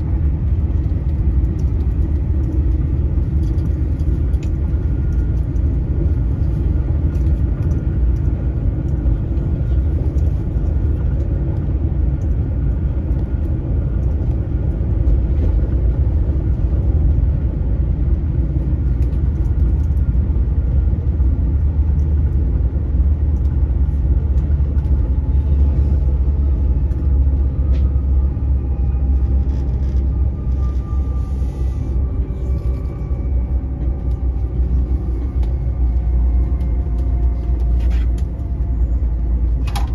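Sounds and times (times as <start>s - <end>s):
electric train rumbling: 0.0s - 39.9s
faint whine: 0.0s - 39.9s.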